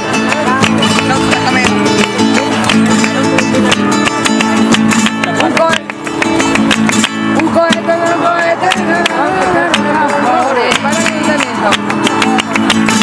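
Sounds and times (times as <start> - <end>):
flamenco guitar strumming: 0.0 - 13.0
hand claps: 0.0 - 13.0
people singing: 7.4 - 12.7.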